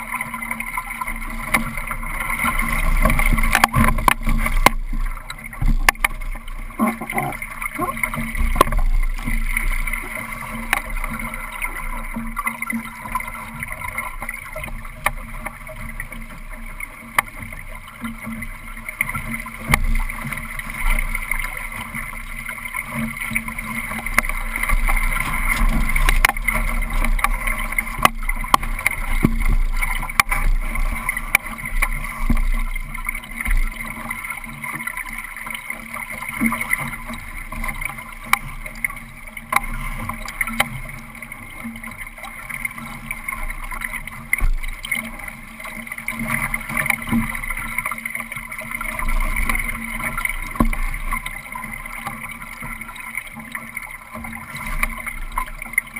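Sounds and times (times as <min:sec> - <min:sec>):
water rushing along a hull: 0:00.0 - 0:55.9
knocks from hull and fittings: 0:01.4 - 0:11.4.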